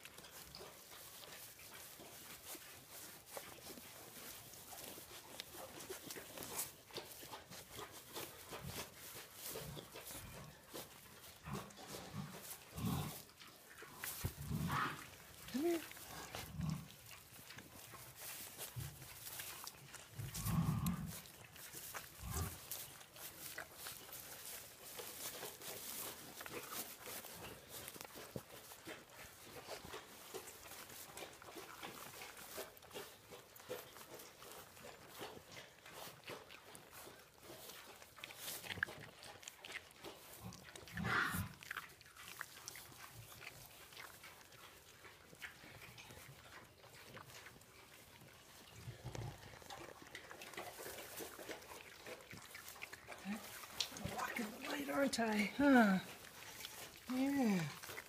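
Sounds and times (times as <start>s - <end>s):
straw crackling and rustling: 0.0s - 58.0s
piglets grunting: 40.4s - 41.7s.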